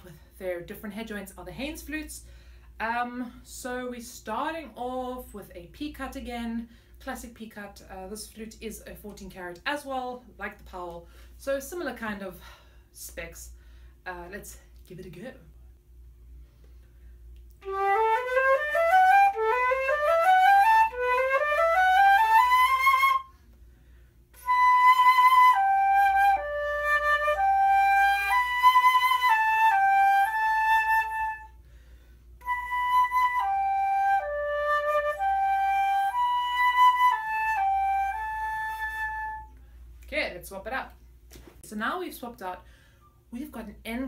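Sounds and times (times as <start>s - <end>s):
flute playing: 17.6s - 23.4s, 24.4s - 31.6s, 32.4s - 39.6s.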